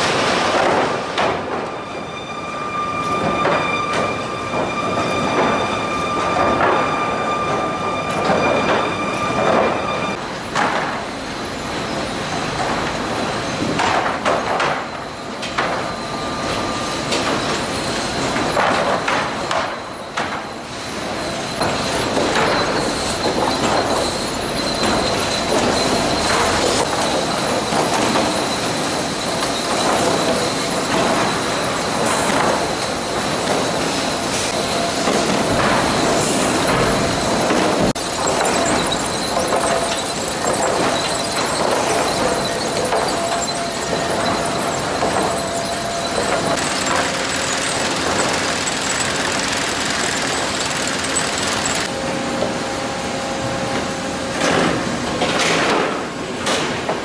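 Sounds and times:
high metallic squeal: 0.0s - 52.0s
steady machine whine: 1.3s - 13.8s, 19.9s - 54.3s
chain conveyors clattering: 36.6s - 51.9s.

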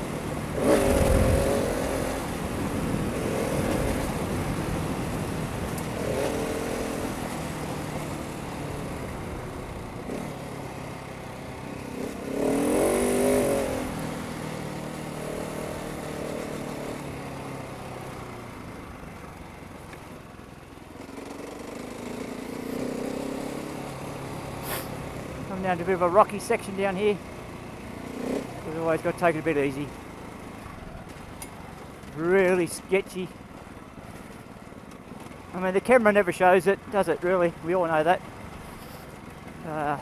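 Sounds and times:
motorcycle engine revving: 0.0s - 19.3s, 20.9s - 33.2s.

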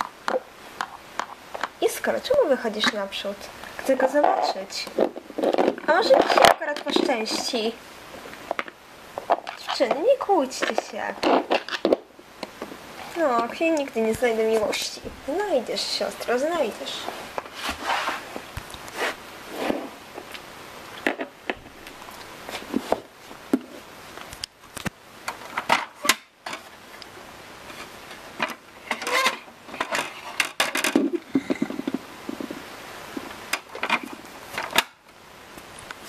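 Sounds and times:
plastic toys clicking and knocking: 4.2s - 7.6s, 8.4s - 12.7s, 28.4s - 32.0s.

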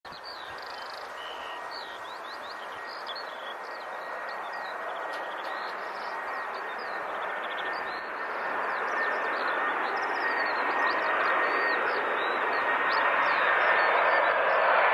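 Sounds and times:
birds chirping: 0.1s - 14.6s
jet engines roaring: 0.2s - 14.9s.

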